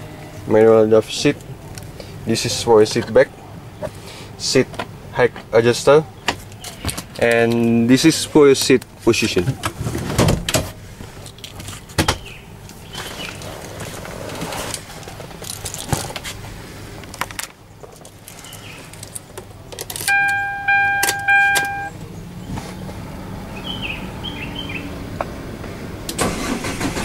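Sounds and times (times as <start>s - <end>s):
keys jangling and clicking: 19.8s - 21.9s
dashboard warning tone beeping: 20.1s - 22.0s.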